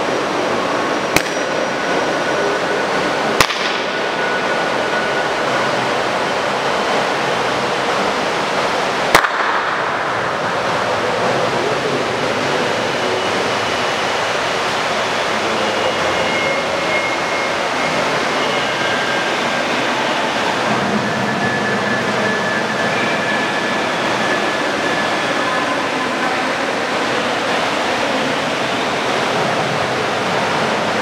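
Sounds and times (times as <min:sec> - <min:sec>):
steady rushing hiss: 0:00.0 - 0:31.0
hand clap echoing: 0:03.4 - 0:04.0, 0:09.2 - 0:10.2.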